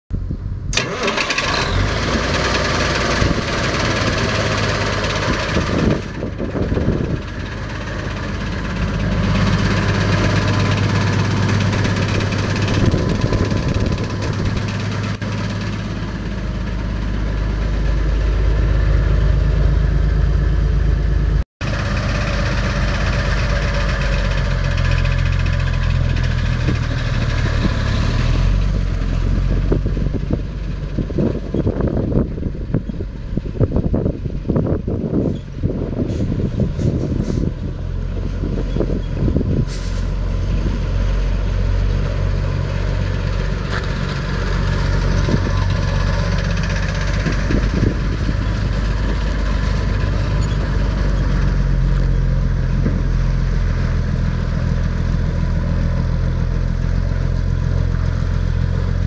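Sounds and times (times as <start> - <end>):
diesel engine idling: 0.5 - 59.0
engine fan turning: 0.5 - 59.0.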